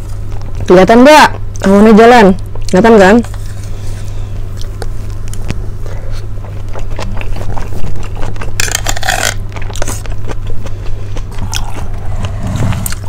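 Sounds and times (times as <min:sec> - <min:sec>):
person chewing: 0:00.0 - 0:00.7, 0:03.3 - 0:13.0
steady low hum: 0:00.0 - 0:13.0
loud scraping rustle: 0:11.9 - 0:13.0.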